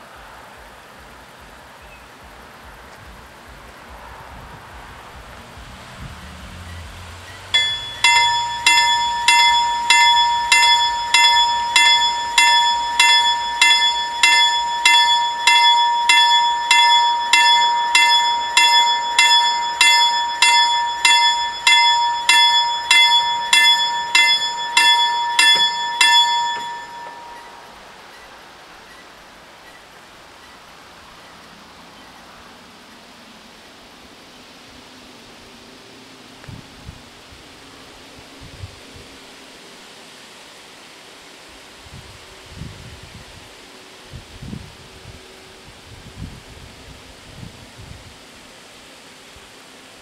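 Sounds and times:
level crossing bells clanging: 0:07.4 - 0:27.8.

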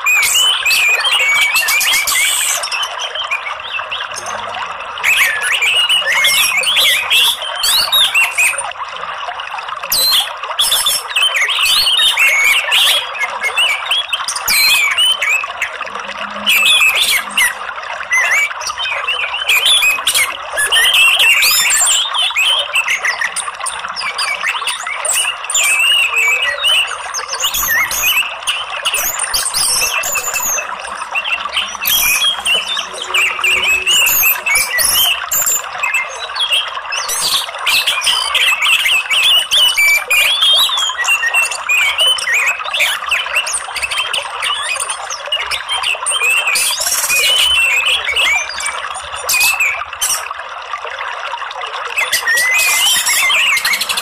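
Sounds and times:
flowing water: 0:00.0 - 0:54.0
bird chirping and chattering: 0:24.0 - 0:42.0.

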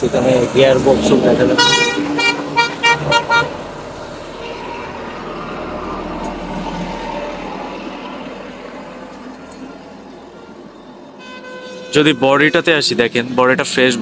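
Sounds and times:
motor vehicle passing: 0:00.0 - 0:10.0.

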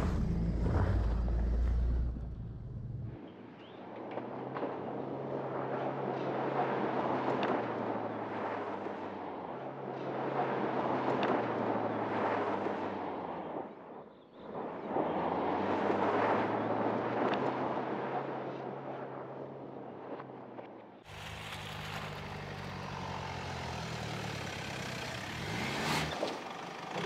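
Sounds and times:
car engine hum: 0:00.0 - 0:03.2, 0:21.1 - 0:27.0
tyres rumbling on loose dirt: 0:00.0 - 0:03.2, 0:21.1 - 0:27.0.

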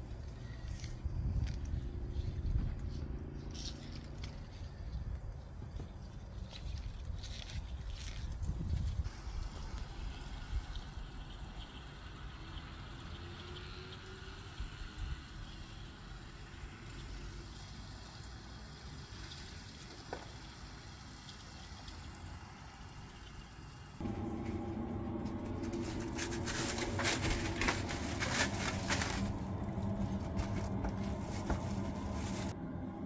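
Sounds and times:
faint outdoor ambience: 0:00.0 - 0:33.0
steady low hum: 0:24.0 - 0:33.0
cloth and plastic wrap rustling: 0:25.3 - 0:32.6.

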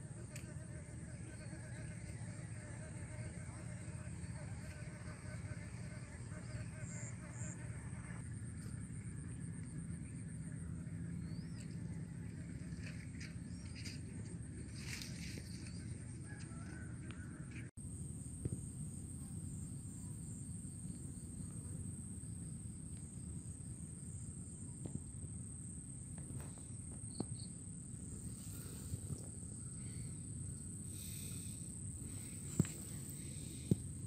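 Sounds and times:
constant low rumble: 0:00.0 - 0:34.0
high-pitched insect trill: 0:17.9 - 0:34.0.

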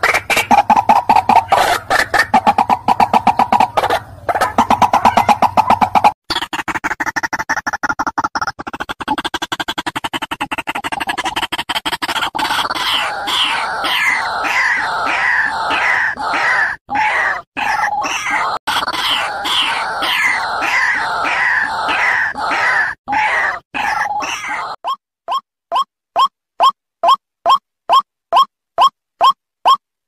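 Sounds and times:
waterhen calling: 0:00.0 - 0:06.2
harsh repeated bird notes: 0:00.0 - 0:29.8.

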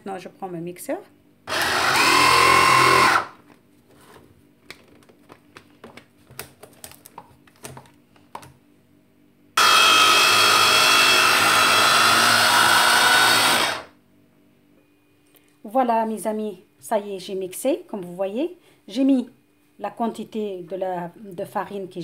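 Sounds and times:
electric chopper whining: 0:01.5 - 0:03.4, 0:09.6 - 0:13.9.

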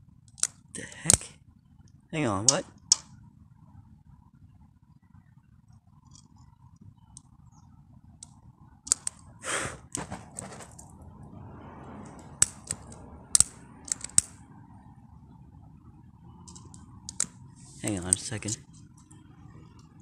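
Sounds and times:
short hiss: 0:09.4 - 0:10.7.

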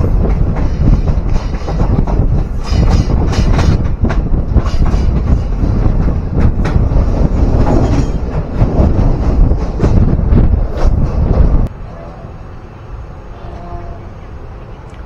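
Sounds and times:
wheels clacking on rail joints: 0:00.0 - 0:11.7
train wheels rumbling: 0:00.0 - 0:15.0.

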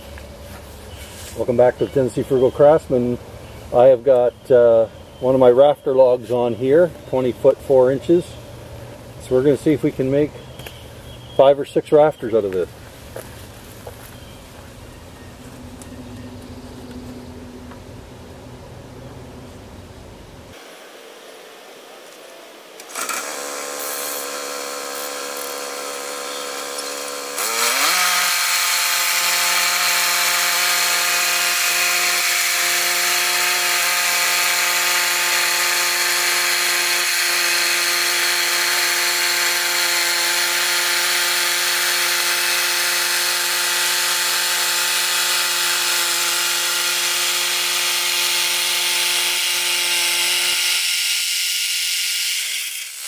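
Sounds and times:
gas engine starting and revving: 0:22.8 - 0:45.9
band saw cutting log: 0:22.8 - 0:53.0.

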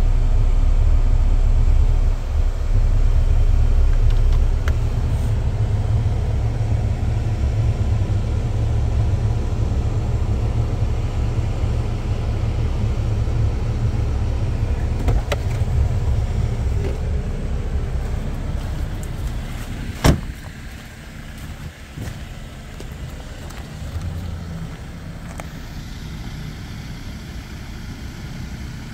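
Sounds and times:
car engine idling: 0:00.0 - 0:28.9
car door shutting: 0:14.8 - 0:15.9, 0:18.0 - 0:22.2.

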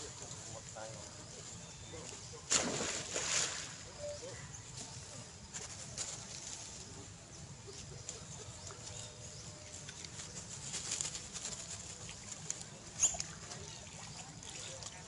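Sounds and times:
monkeys splashing in water: 0:02.4 - 0:03.9
paddling in water: 0:02.4 - 0:03.9, 0:11.3 - 0:15.0.

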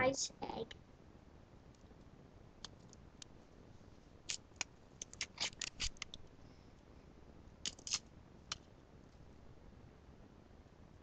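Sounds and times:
chocolate egg crackling and clicking: 0:01.7 - 0:03.3, 0:04.2 - 0:06.3, 0:07.6 - 0:08.6
foil wrapper crinkling: 0:04.3 - 0:06.2.

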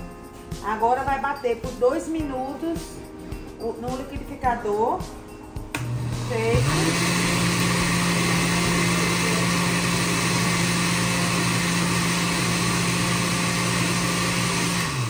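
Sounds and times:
blender motor running: 0:05.8 - 0:15.0.

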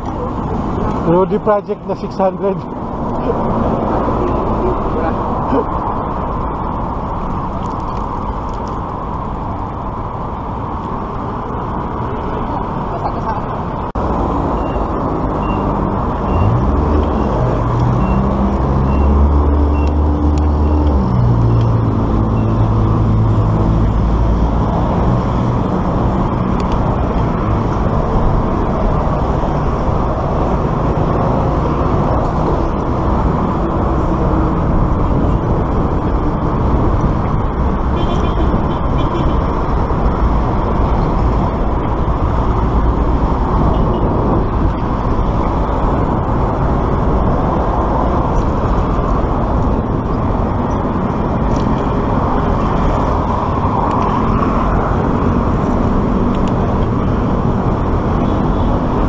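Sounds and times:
large vehicle engine: 0:00.0 - 0:59.0
road traffic noise: 0:00.0 - 0:59.0
wind rush on microphone: 0:02.6 - 0:59.0.

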